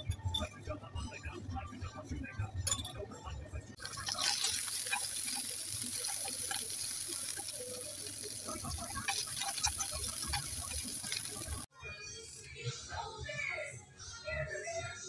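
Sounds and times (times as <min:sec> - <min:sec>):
vegetables sizzling in a frying pan: 0:03.8 - 0:11.7
spatula scraping and tapping pan: 0:08.3 - 0:11.7.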